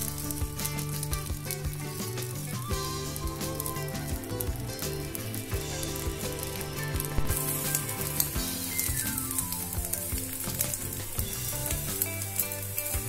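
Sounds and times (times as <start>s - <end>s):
background music: 0.0s - 13.0s
food sizzling in a frying pan: 0.0s - 13.0s.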